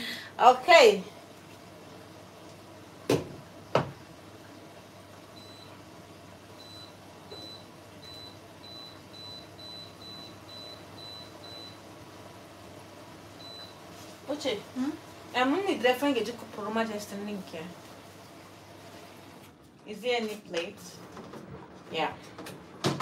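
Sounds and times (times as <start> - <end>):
cooktop touch control beeps: 5.4 - 5.8, 6.6 - 11.9, 13.4 - 13.8.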